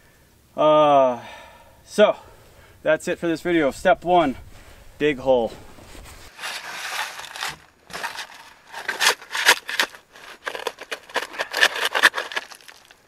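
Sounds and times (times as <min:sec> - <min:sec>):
shovel crunching into gravel: 0:06.3 - 0:13.0.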